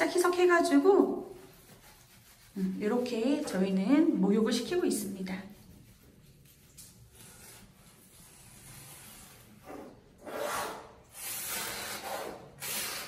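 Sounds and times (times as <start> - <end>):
hissing rubbing of wet dog coat: 0.2 - 13.0.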